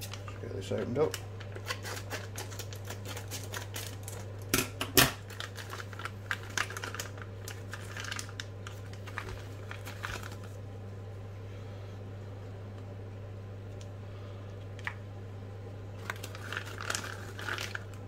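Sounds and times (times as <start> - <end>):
plastic bag crinkling: 0.0 - 4.5, 5.2 - 10.6, 16.0 - 18.0.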